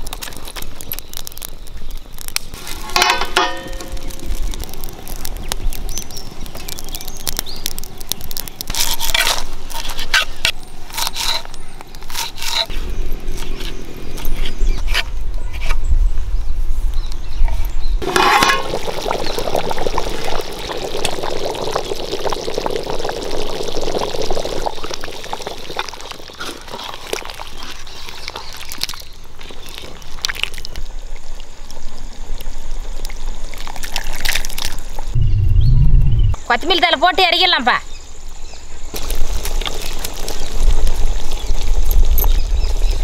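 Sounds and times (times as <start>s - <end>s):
curry boiling in pot: 18.0s - 35.2s, 38.9s - 43.0s.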